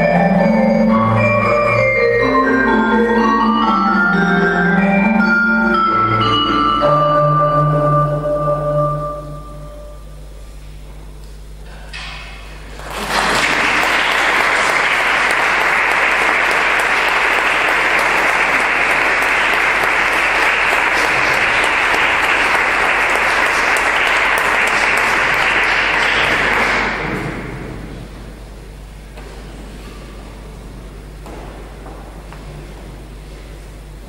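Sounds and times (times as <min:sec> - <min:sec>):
audience applauding: 0:12.6 - 0:27.6.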